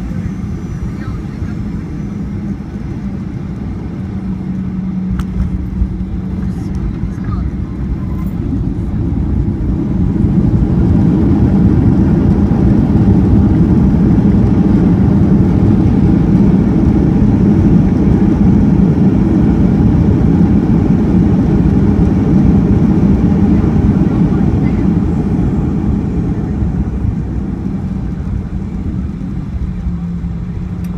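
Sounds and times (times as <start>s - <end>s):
airplane engine rumble in cabin: 0.0s - 30.9s.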